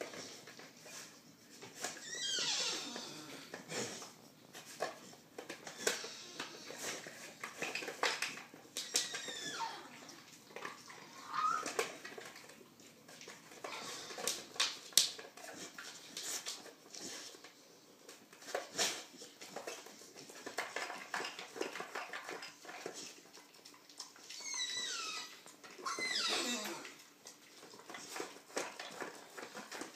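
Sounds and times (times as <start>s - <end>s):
dog whining: 2.0s - 3.5s, 5.7s - 6.8s, 8.8s - 12.1s, 24.2s - 27.1s.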